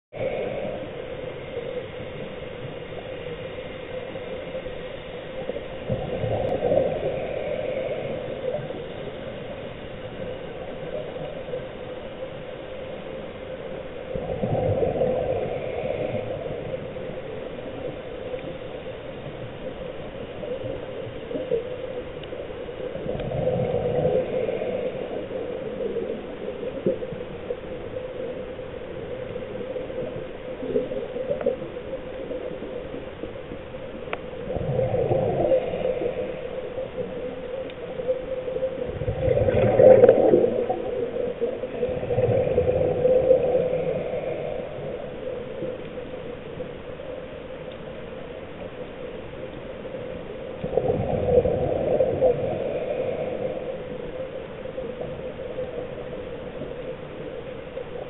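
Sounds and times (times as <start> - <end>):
steady hum: 0.1 - 58.0
exhaled bubbles underwater: 5.3 - 46.8, 49.8 - 58.0.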